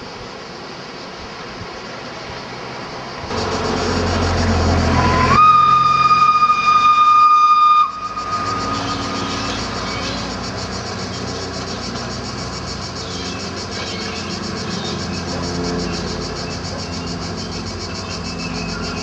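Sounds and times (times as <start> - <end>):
train running: 3.3 - 19.0
steam locomotive whistle: 3.5 - 9.5.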